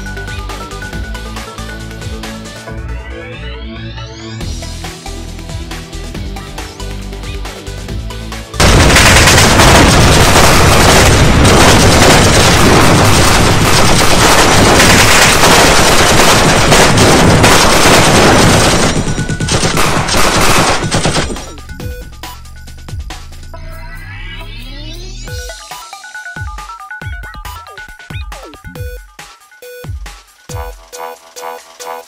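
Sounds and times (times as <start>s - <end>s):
electronic background music: 0.0s - 13.7s, 17.9s - 32.0s
rapid gunfire: 8.6s - 22.4s.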